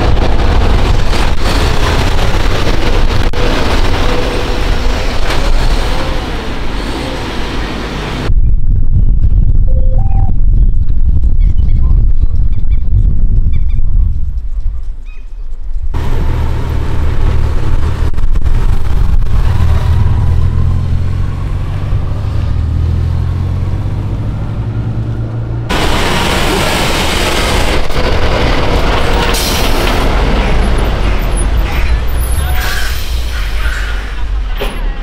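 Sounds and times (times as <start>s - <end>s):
heavy truck rumbling: 0.0s - 8.3s, 15.9s - 35.0s.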